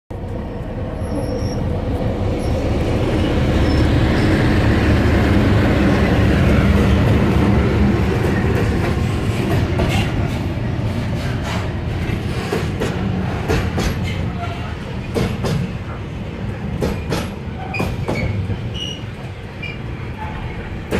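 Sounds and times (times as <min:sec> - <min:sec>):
diesel locomotive engine rumbling: 0:00.1 - 0:20.9
train wheels clicking over rail joints: 0:08.0 - 0:20.9.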